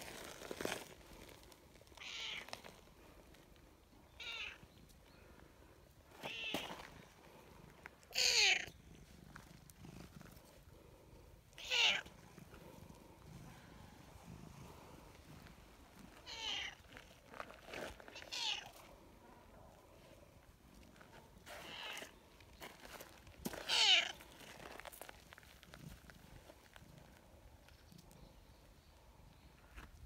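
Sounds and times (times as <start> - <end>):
cat meowing: 2.0 - 2.5, 4.1 - 4.6, 6.2 - 6.6, 8.1 - 8.7, 11.6 - 12.1, 16.2 - 16.8, 18.2 - 18.7, 23.6 - 24.2
cat purring: 8.6 - 16.2.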